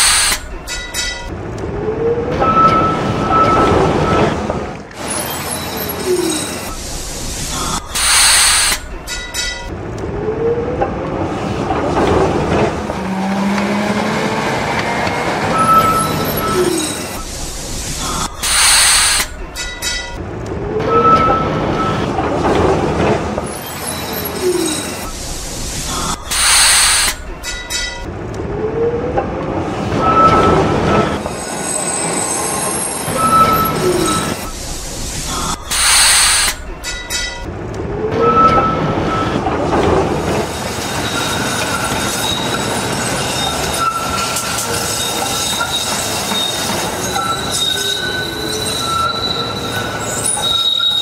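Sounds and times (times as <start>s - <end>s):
tram brake hiss: 0.0s - 1.3s, 5.0s - 9.7s, 15.5s - 20.2s, 23.4s - 28.0s, 30.0s - 37.5s
tram motor whine: 0.0s - 51.0s
tram rumbling on rails: 0.0s - 51.0s.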